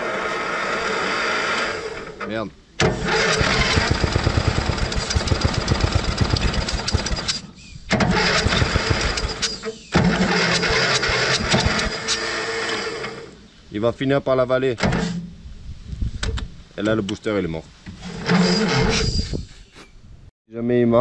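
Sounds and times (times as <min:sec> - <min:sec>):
engine cranked by electric starter: 0:00.0 - 0:13.4.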